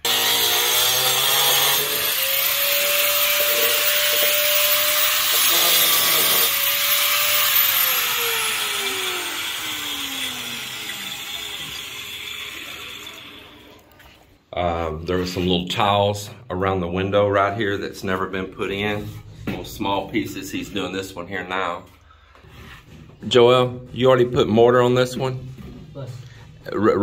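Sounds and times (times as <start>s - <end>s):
angle grinder cutting tile: 0.0s - 13.9s
grinder disc winding down: 0.0s - 13.9s.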